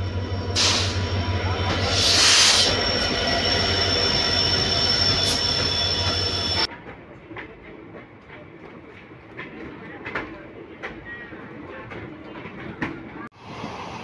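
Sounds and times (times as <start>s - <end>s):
diesel locomotive engine throb: 0.0s - 6.7s
high-pitched wheel squeal: 0.4s - 6.7s.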